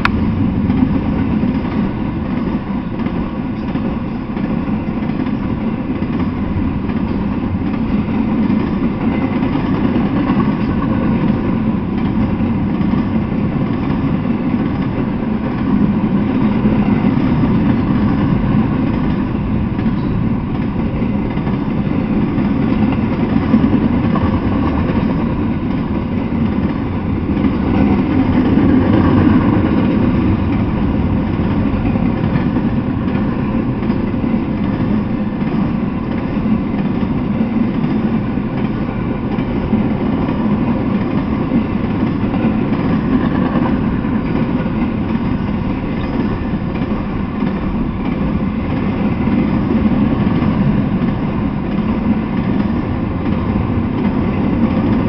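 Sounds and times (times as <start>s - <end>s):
steel wheels on rails: 0.0s - 55.0s.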